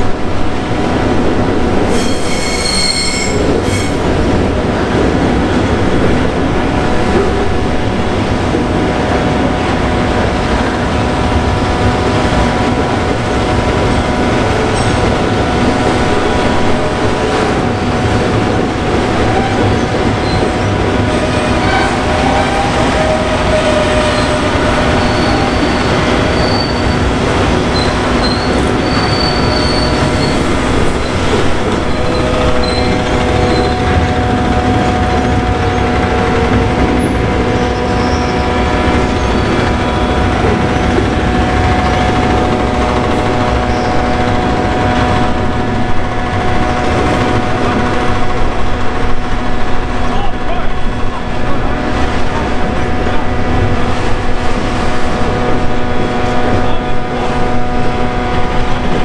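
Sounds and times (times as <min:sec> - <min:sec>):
train wheels rumbling on track: 0:00.0 - 0:59.0
high-pitched wheel squeal: 0:01.9 - 0:04.0, 0:23.6 - 0:27.1, 0:27.7 - 0:31.2.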